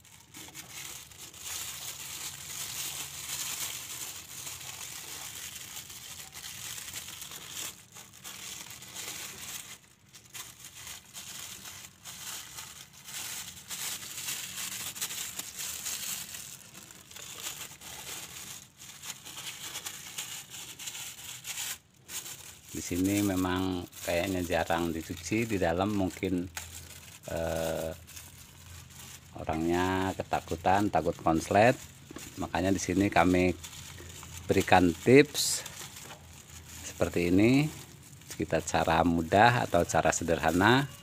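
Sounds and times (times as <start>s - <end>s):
plastic sheet crinkling: 0.0s - 41.0s.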